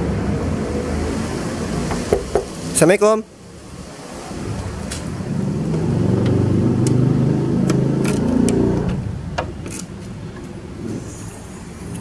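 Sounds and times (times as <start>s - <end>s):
motor vehicle engine running: 4.2s - 12.0s.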